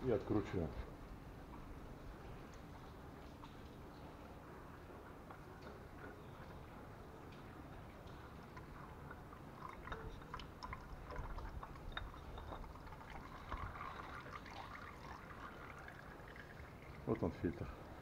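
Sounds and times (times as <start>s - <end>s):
oil dripping into a basin: 8.0s - 18.0s.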